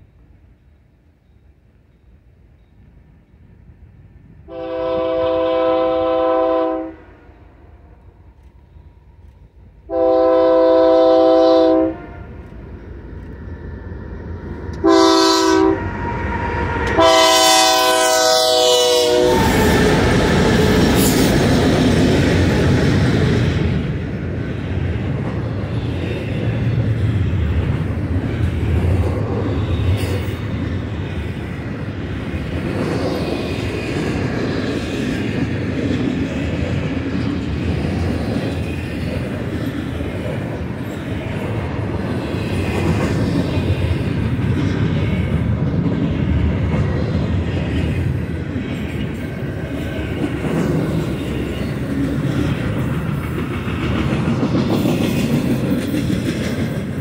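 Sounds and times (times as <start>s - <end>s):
train wheels rumbling on rails: 0.0s - 57.0s
locomotive air horn: 4.5s - 7.8s, 9.9s - 12.4s, 14.8s - 15.9s, 16.8s - 20.0s.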